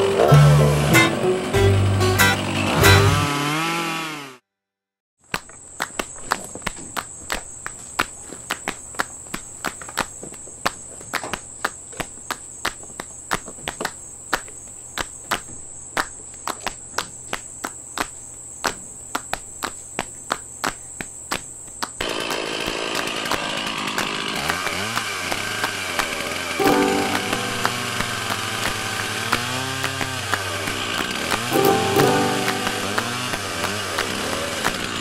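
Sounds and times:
chainsaw engine idling: 0:22.0 - 0:35.0.

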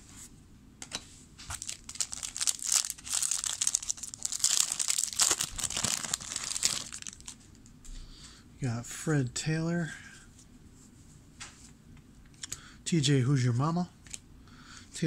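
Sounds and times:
foil wrapper tearing and crinkling: 0:01.5 - 0:07.4.

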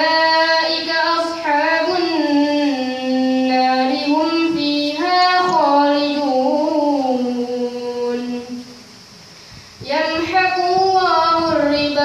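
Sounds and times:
boy chanting melodically: 0:00.0 - 0:08.9, 0:09.7 - 0:12.0.

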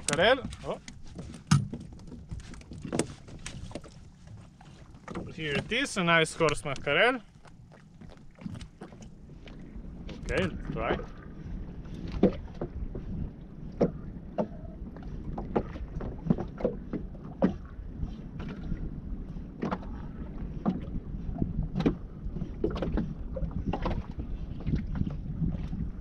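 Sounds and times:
water slapping boat hull: 0:00.0 - 0:26.0
wind on microphone: 0:08.5 - 0:26.0.

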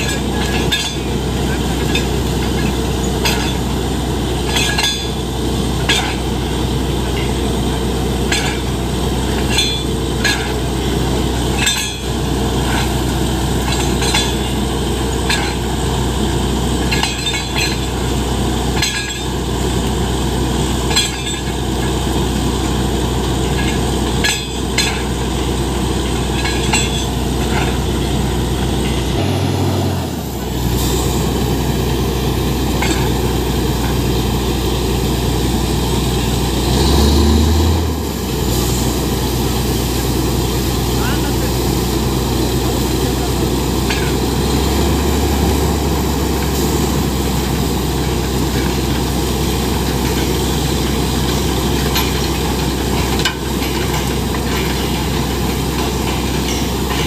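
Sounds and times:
drilling rig engine and compressor drone: 0:00.0 - 0:57.0
metallic clinks of drill rods: 0:04.5 - 0:05.2, 0:11.4 - 0:13.0, 0:13.6 - 0:15.8, 0:16.8 - 0:18.2, 0:26.0 - 0:28.1.

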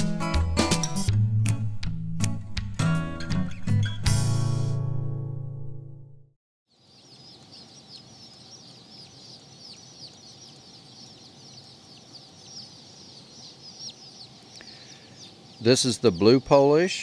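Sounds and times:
chicks peeping: 0:06.7 - 0:17.0.

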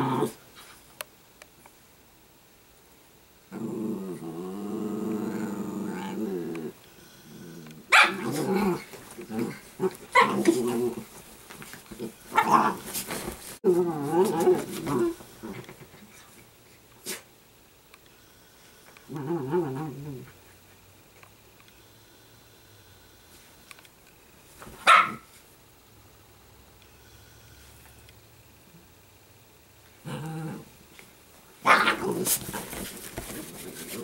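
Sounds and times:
dogs growling: 0:03.5 - 0:11.2, 0:13.6 - 0:15.9, 0:19.1 - 0:20.4, 0:30.0 - 0:30.7.

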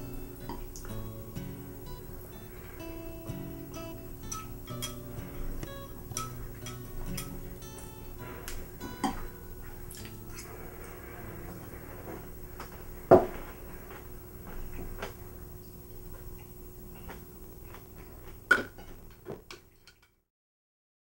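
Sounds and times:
low room hum: 0:00.0 - 0:20.3
chopsticks and dishes knocking: 0:04.8 - 0:07.4.

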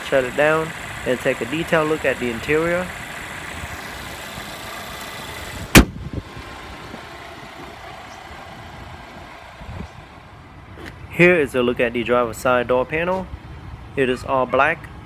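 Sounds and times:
car engine idling: 0:00.0 - 0:15.0
car hood slammed shut: 0:05.7 - 0:06.0.

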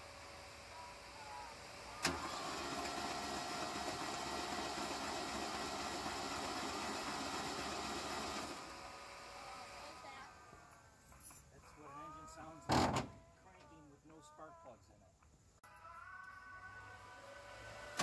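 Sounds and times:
car engine idling: 0:00.0 - 0:10.6
engine starting click: 0:02.0 - 0:03.9.

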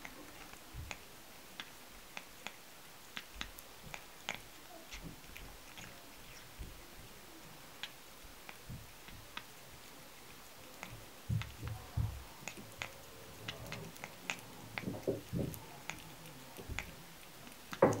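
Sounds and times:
cat licking wet clicks: 0:00.0 - 0:18.0
soft low thumps: 0:11.3 - 0:12.3.

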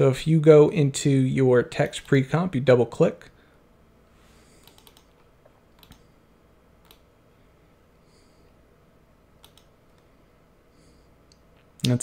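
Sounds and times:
keyboard typing: 0:04.6 - 0:06.1, 0:06.8 - 0:07.1, 0:09.4 - 0:10.0
mouse clicks: 0:04.6 - 0:06.1, 0:06.8 - 0:07.0, 0:09.4 - 0:10.1.

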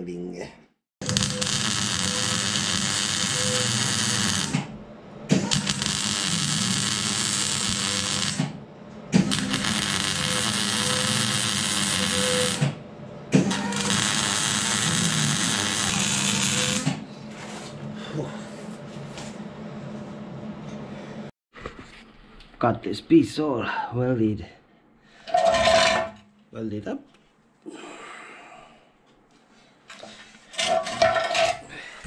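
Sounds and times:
arc welding crackling buzz: 0:01.0 - 0:04.7, 0:05.4 - 0:08.6, 0:09.2 - 0:12.8, 0:13.5 - 0:17.0.

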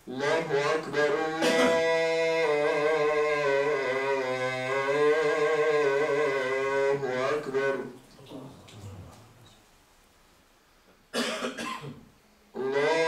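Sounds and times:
man chanting call to prayer: 0:00.0 - 0:09.4, 0:12.6 - 0:13.0.

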